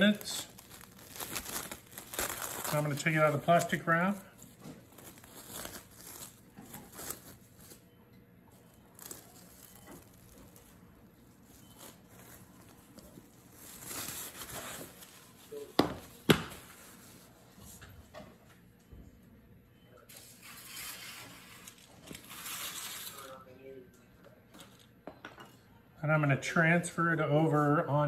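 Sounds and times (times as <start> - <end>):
plastic wrap crinkling: 0.0 - 7.9, 8.5 - 17.4, 20.2 - 23.4.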